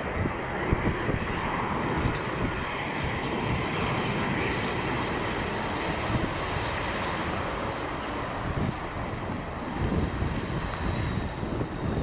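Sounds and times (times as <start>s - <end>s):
jet engines at approach: 0.0s - 12.0s.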